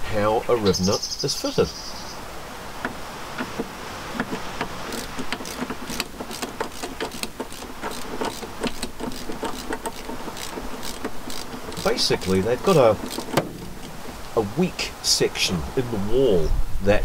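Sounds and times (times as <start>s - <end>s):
socket ratchet clicking: 2.8s - 14.1s.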